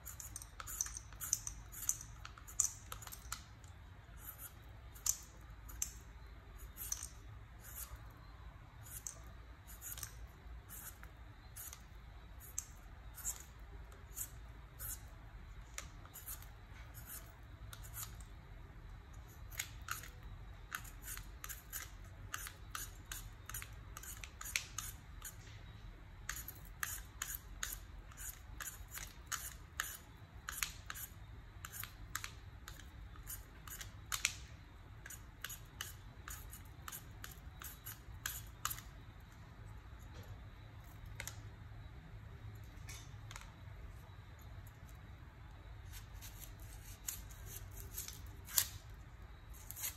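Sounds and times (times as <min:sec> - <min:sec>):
peeler scraping vegetable: 0:00.0 - 0:03.6, 0:04.2 - 0:08.1, 0:08.8 - 0:18.3, 0:19.3 - 0:25.4, 0:26.3 - 0:34.3, 0:35.0 - 0:38.9, 0:45.8 - 0:48.9, 0:49.5 - 0:49.9.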